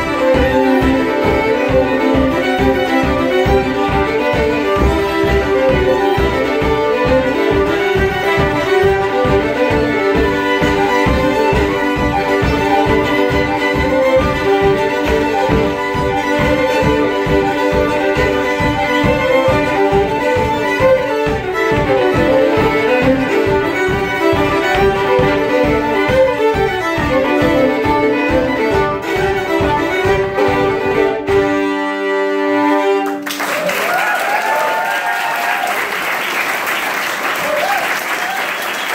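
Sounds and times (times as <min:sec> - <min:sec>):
fiddles playing a fast jig: 0:00.0 - 0:38.9
audience applause and cheering: 0:33.0 - 0:38.9.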